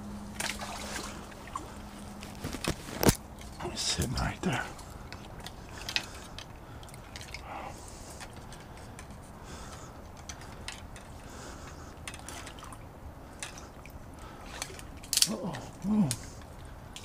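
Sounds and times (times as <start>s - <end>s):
low steady rumble: 0.0s - 17.0s
water trickling and dripping: 3.4s - 8.7s, 12.0s - 17.0s
small clicks and knocks: 8.1s - 12.6s.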